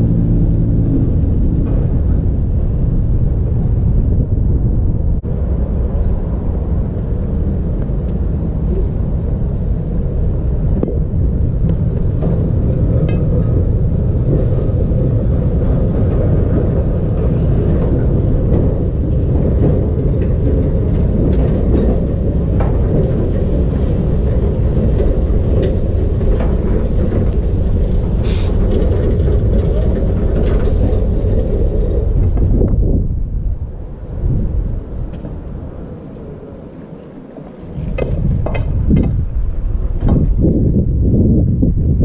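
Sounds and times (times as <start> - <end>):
tram rumbling on tracks: 0.0 - 42.0
brief hiss: 28.2 - 28.5.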